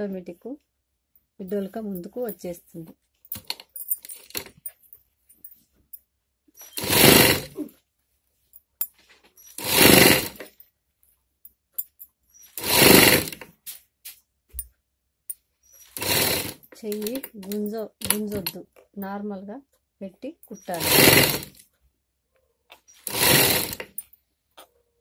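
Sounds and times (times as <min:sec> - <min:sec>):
sewing machine stitching: 0:06.6 - 0:07.7, 0:09.5 - 0:10.6, 0:12.5 - 0:13.5, 0:15.8 - 0:18.6, 0:20.5 - 0:21.6, 0:22.9 - 0:24.0.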